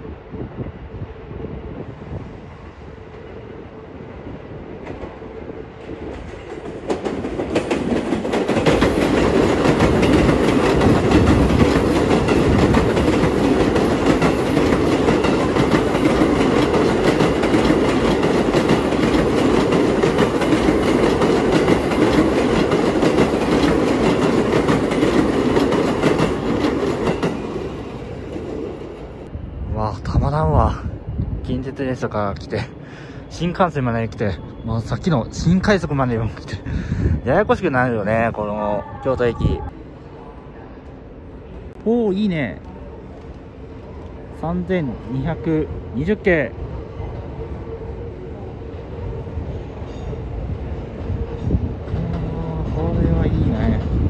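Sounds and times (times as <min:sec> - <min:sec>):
electric train passing: 0:00.0 - 0:54.0.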